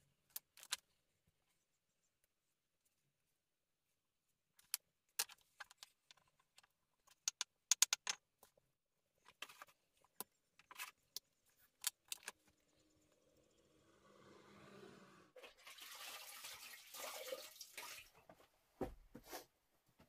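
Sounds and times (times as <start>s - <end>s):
stones clicking and scraping: 4.6s - 8.6s.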